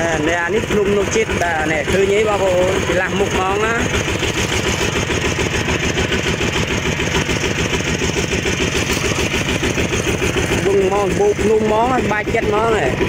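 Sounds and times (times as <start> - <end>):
single-cylinder diesel engine running: 0.0 - 13.0.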